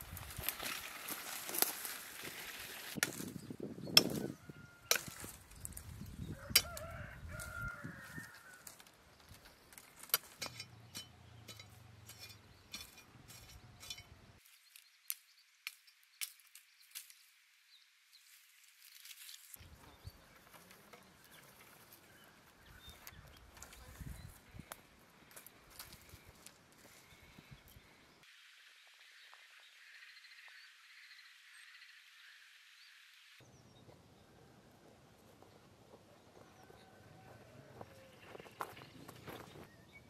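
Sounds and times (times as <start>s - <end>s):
dry twigs snapping: 0.0s - 3.4s
rooster crowing: 4.1s - 5.2s, 6.3s - 8.8s, 36.4s - 38.2s.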